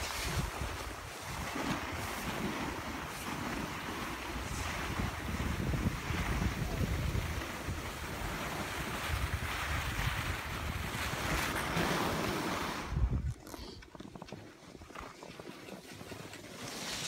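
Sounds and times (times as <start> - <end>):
wind buffeting microphone: 0.0 - 15.6
skis hissing over snow: 11.1 - 12.9, 16.5 - 17.0.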